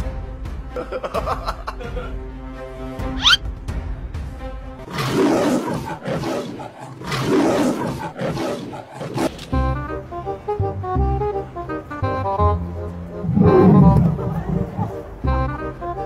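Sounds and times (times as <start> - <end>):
music: 0.0 - 7.0, 8.9 - 16.0
lion roaring: 4.9 - 9.4, 13.0 - 15.3.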